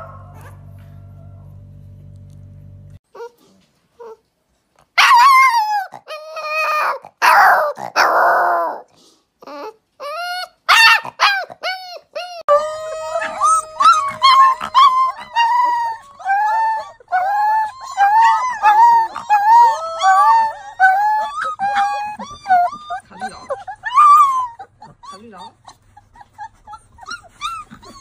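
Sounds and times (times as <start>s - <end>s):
puppies howling and yipping: 5.0s - 8.8s, 9.5s - 28.0s.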